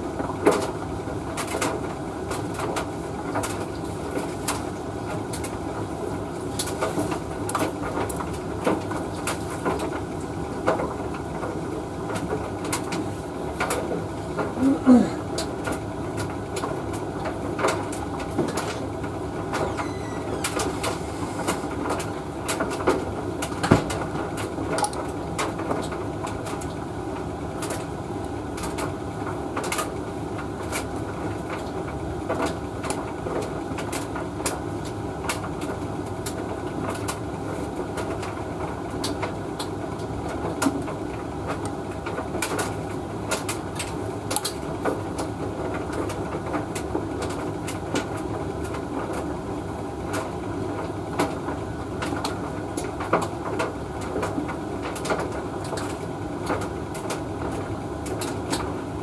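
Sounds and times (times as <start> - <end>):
tumble dryer motor drone: 17.4 - 25.4
laundry knocking in drum: 23.6 - 24.1.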